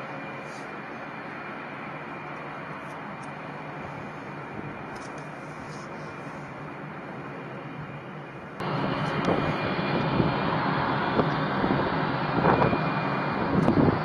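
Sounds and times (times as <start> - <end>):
jet engines rushing with whine: 0.0 - 14.0
wind buffeting microphone: 8.6 - 14.0.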